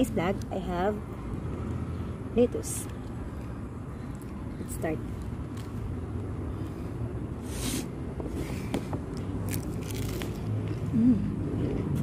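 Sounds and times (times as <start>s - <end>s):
lettuce leaves torn and bitten: 5.2s - 5.9s, 9.1s - 12.0s.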